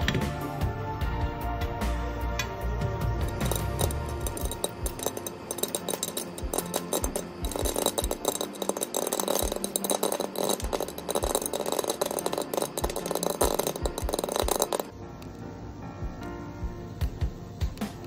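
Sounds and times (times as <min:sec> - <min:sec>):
popcorn popping in a pan: 0:03.2 - 0:15.4.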